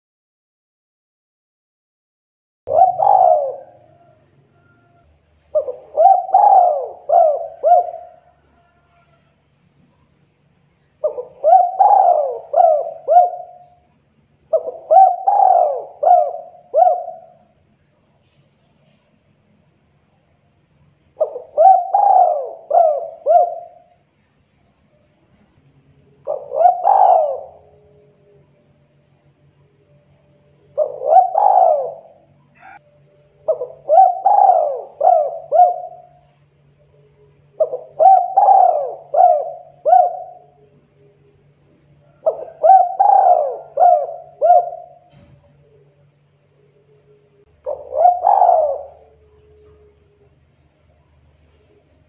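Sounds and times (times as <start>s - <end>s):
dove cooing: 2.7s - 9.3s, 11.0s - 13.9s, 14.5s - 17.5s, 21.2s - 24.0s, 26.2s - 28.4s, 30.6s - 41.3s, 42.0s - 46.0s, 47.5s - 50.3s.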